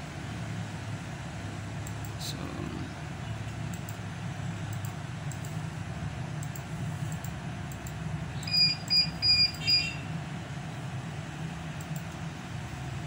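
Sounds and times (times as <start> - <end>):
steady low hum: 0.0 - 13.0
short electronic beeps: 8.4 - 10.0.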